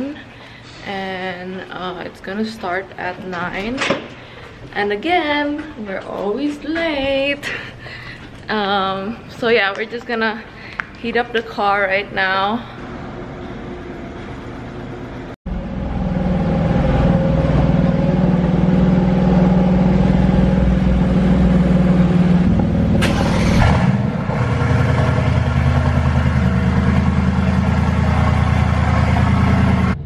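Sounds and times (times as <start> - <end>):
car engine idling: 13.8 - 30.0.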